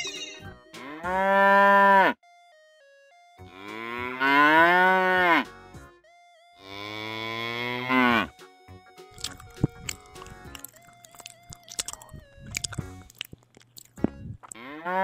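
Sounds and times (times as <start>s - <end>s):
cow mooing: 0.8s - 2.2s, 3.6s - 5.5s, 6.6s - 8.3s, 14.6s - 15.0s.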